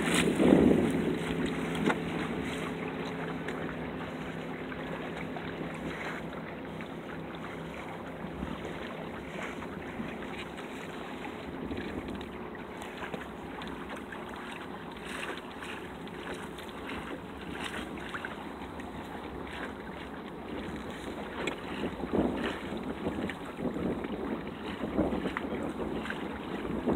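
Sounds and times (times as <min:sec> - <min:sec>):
wind gusting over microphone: 0:00.0 - 0:02.9, 0:20.5 - 0:26.9
water lapping against hull: 0:00.0 - 0:26.9.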